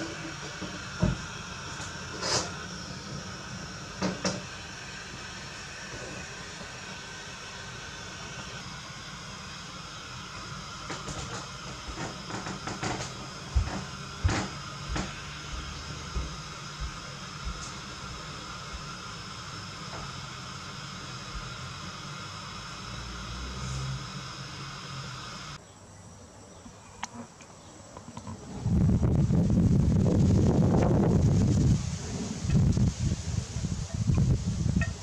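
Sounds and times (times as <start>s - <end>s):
gas burner hissing: 0.0s - 25.6s, 28.1s - 35.0s.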